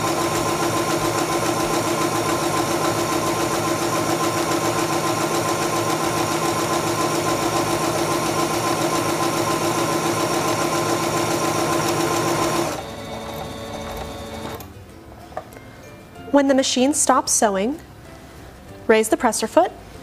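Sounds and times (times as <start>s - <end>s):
sewing machine stitching: 0.0s - 14.6s.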